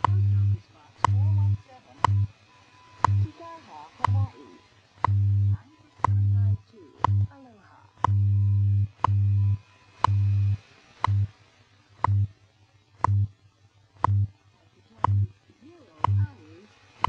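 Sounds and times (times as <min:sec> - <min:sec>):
short time signal ticks: 0:00.0 - 0:07.4, 0:08.0 - 0:11.3, 0:12.0 - 0:12.3, 0:13.0 - 0:13.4, 0:14.0 - 0:14.3, 0:15.0 - 0:15.4, 0:16.0 - 0:16.5
faint shortwave hiss: 0:00.0 - 0:17.0
low hum pulses: 0:00.0 - 0:17.0.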